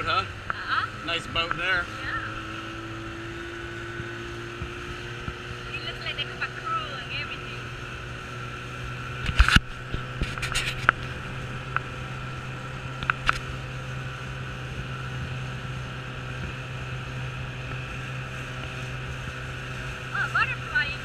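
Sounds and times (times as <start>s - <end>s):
motorboat engine droning: 0.0s - 21.0s
water rushing: 5.6s - 21.0s.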